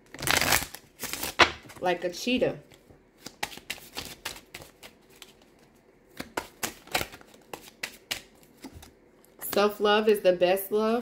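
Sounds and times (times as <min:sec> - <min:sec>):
cards being shuffled: 0:00.1 - 0:01.8, 0:02.7 - 0:09.7.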